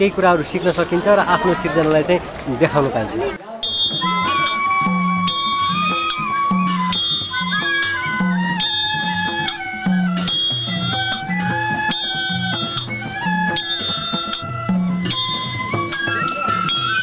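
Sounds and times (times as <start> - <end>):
bamboo flutes playing melody: 3.6 - 17.0.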